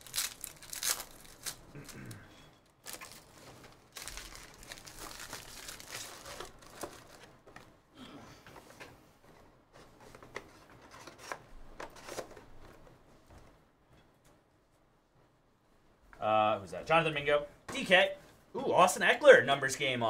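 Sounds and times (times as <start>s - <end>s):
wrapper tearing and crinkling: 0.0s - 2.1s, 2.8s - 7.4s.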